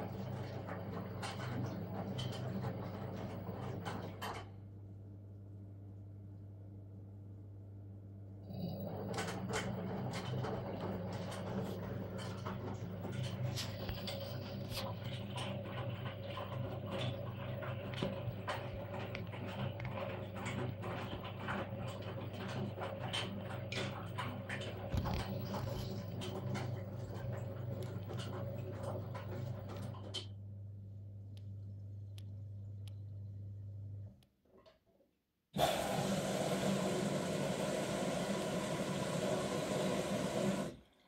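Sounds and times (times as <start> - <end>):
washing machine clicks and knocks: 0.0 - 4.6, 8.9 - 30.3
washing machine humming: 0.0 - 34.2, 35.5 - 41.0.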